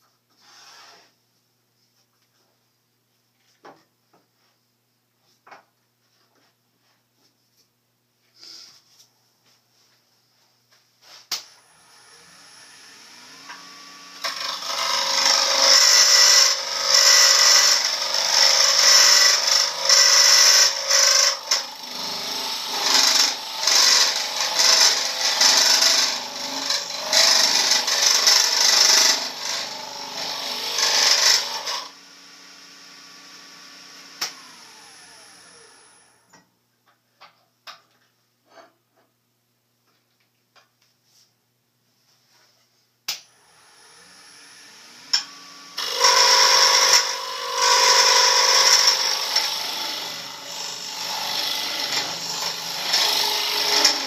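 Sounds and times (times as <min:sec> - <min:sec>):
wood lathe humming: 0:11.6 - 0:36.2, 0:43.4 - 0:54.0
gouge shaving spinning wood: 0:12.5 - 0:31.9, 0:44.8 - 0:54.0.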